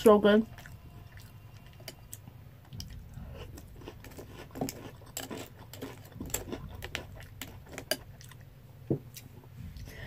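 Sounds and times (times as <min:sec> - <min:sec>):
crunchy cereal being chewed: 0:00.5 - 0:08.5.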